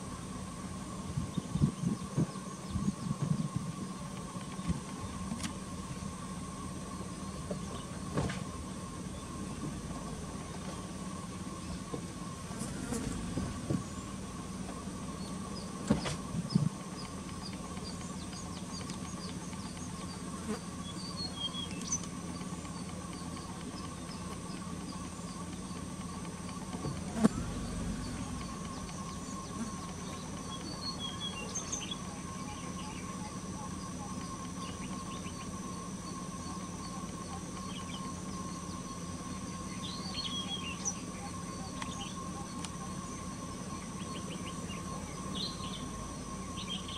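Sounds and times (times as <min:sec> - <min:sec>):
steady hum: 0:00.0 - 0:46.9
faint high bird chirps: 0:17.0 - 0:26.2, 0:27.0 - 0:46.9.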